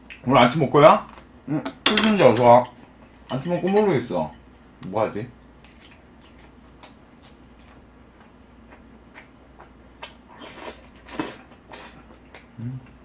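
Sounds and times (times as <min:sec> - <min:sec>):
chewing with wet mouth clicks: 0:05.6 - 0:10.2, 0:11.0 - 0:13.0.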